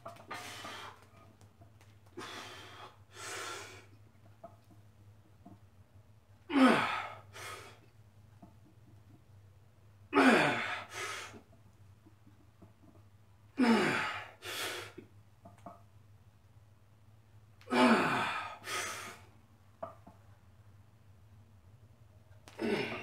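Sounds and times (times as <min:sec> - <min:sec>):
man exhaling with grunts: 0:06.5 - 0:07.6, 0:13.6 - 0:14.3, 0:17.7 - 0:19.2, 0:22.5 - 0:23.0.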